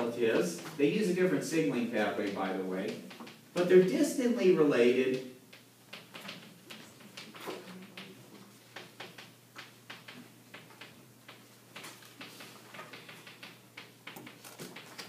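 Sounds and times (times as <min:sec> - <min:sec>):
chalk tapping and scratching: 0:05.9 - 0:15.0.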